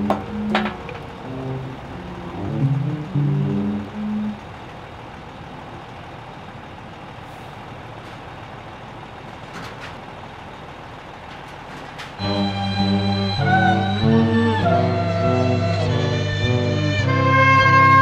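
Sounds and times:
orchestral chord: 0.0 - 4.4, 12.2 - 18.0
hum of trucks and machinery: 0.0 - 18.0.

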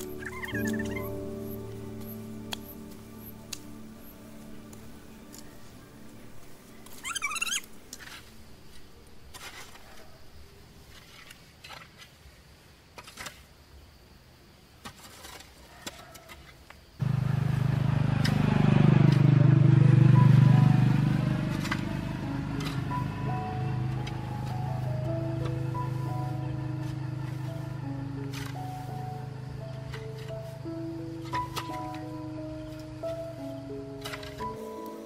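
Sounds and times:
warbling chirp: 0.0 - 1.1
engine running: 17.0 - 34.6.

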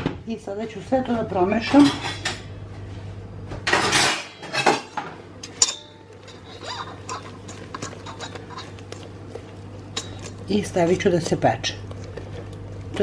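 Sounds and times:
whisk scraping and clinking in bowl: 5.5 - 13.0.

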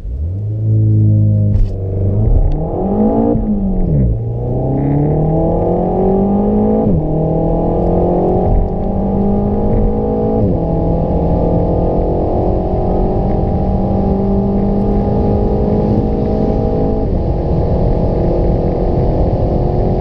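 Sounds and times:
car engine accelerating hard: 0.0 - 20.0.

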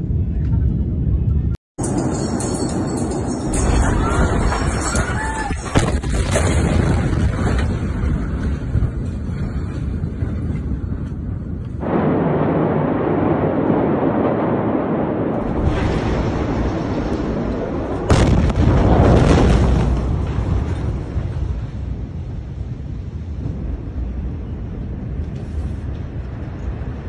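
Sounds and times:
explosion roar: 11.8 - 25.2.

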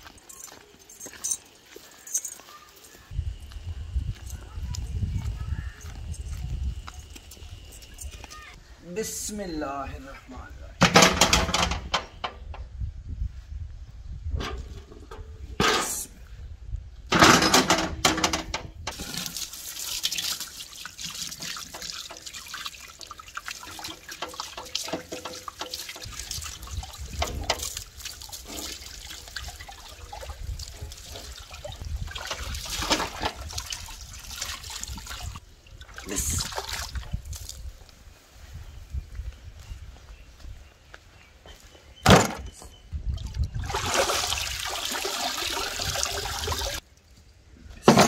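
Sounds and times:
hose water splashing: 18.9 - 37.8, 43.6 - 46.8.

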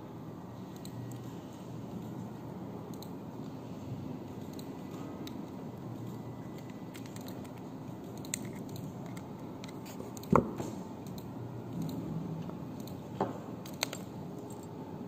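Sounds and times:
small metal parts clicking: 6.1 - 10.3.

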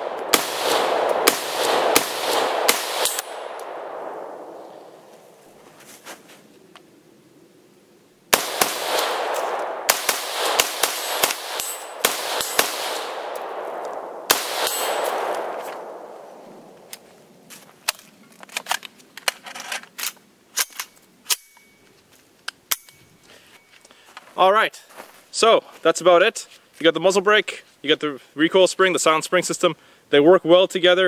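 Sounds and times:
rifle shots echoing: 0.0 - 5.1, 8.3 - 16.8
metallic clicks of rifle handling: 17.8 - 23.1.

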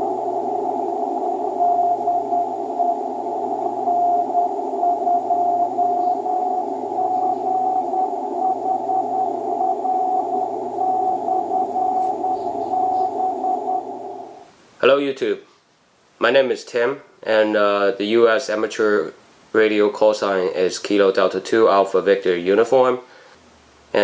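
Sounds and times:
morse code tone: 0.0 - 14.4
receiver hiss: 0.0 - 24.0.

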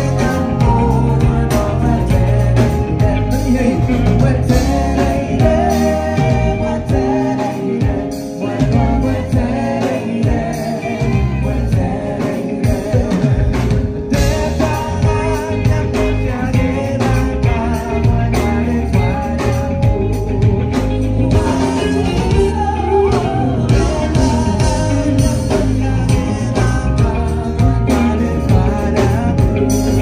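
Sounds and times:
lead singer singing: 0.0 - 30.0
live band playing: 0.0 - 30.0.

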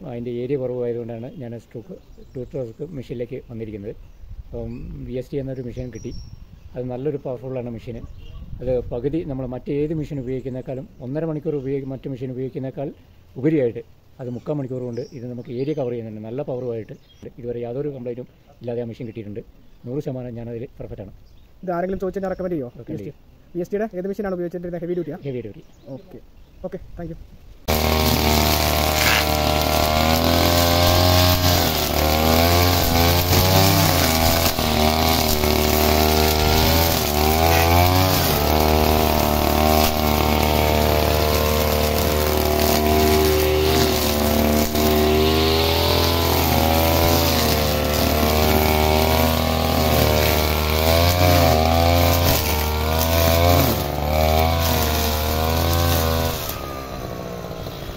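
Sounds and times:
nylon line cutting grass: 27.6 - 57.9
brush cutter engine running: 27.7 - 57.9.

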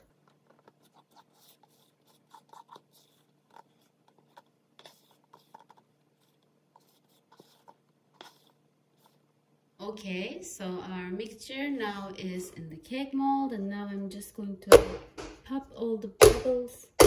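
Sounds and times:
spatula scraping batter in bowl: 0.7 - 9.3.

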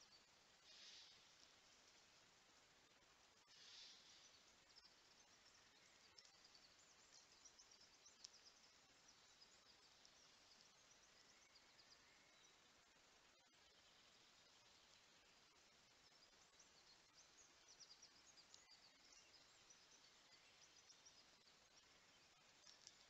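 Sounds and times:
faint forest hiss: 0.0 - 23.0
faint high ticks: 3.4 - 11.7, 16.1 - 23.0.

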